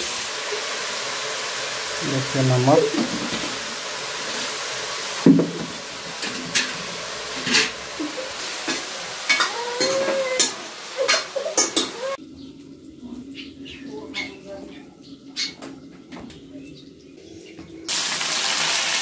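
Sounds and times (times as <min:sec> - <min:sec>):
mushrooms sizzling in a pan: 0:00.0 - 0:12.2, 0:17.9 - 0:19.0.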